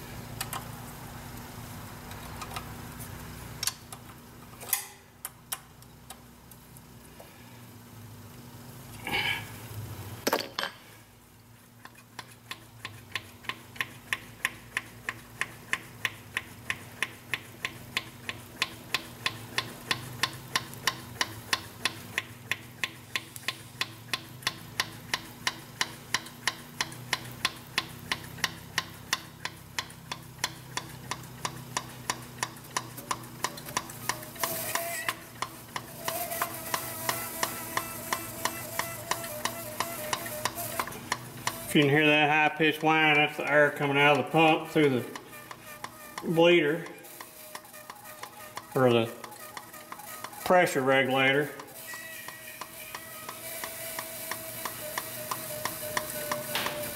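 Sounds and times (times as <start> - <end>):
air hissing: 51.4 - 56.9.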